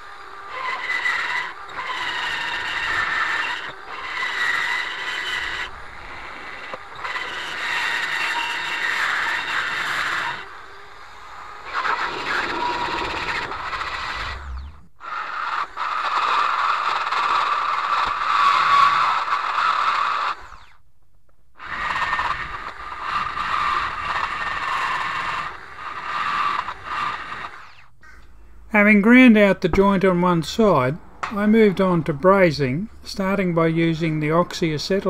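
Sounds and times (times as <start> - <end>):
drill burr grinding cast iron: 0.0 - 20.8, 21.6 - 27.9.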